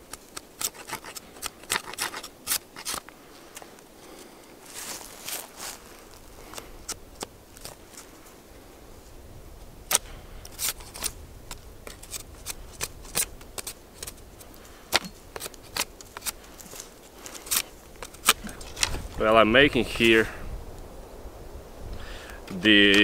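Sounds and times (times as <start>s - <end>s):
knife scraping bark off stick: 0.0s - 3.6s, 9.9s - 19.0s.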